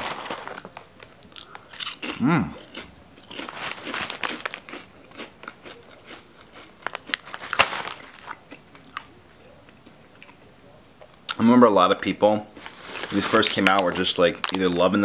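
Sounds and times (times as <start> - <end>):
chips being bitten and chewed: 0.0 - 10.4
short vocal sound: 2.2 - 2.6.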